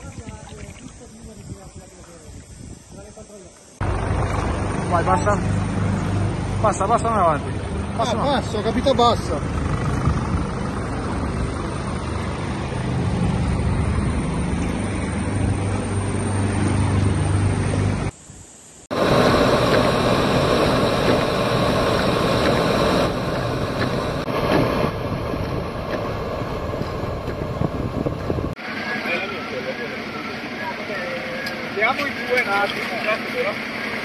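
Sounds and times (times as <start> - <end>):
engine humming: 3.7 - 18.2, 18.9 - 34.0
car driving on wet street: 19.0 - 34.0.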